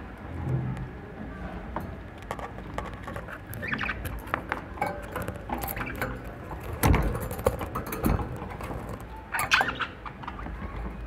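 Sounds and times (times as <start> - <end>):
budgerigars chirping: 3.6 - 4.1.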